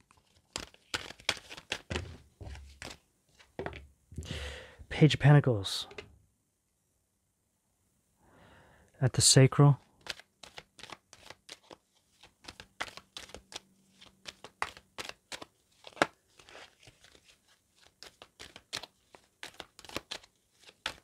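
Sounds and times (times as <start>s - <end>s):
cards being shuffled: 0.0s - 3.8s, 9.8s - 21.0s.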